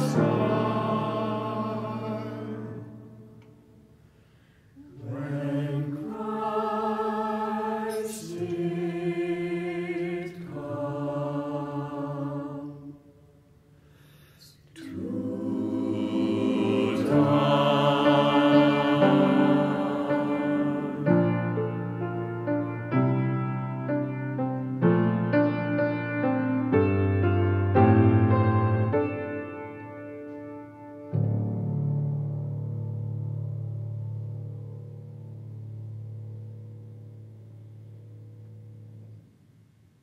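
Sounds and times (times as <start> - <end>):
mixed choir singing: 0.0 - 3.5, 4.8 - 13.2, 14.8 - 22.0.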